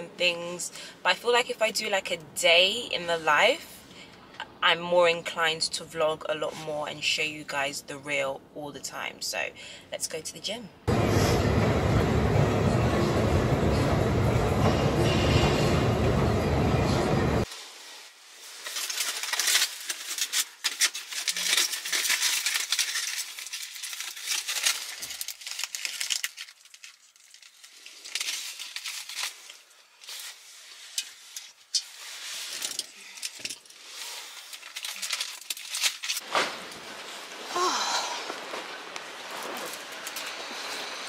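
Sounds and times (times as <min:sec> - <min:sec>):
plastic wrapper crinkling: 0:17.5 - 0:37.6, 0:38.2 - 0:41.0.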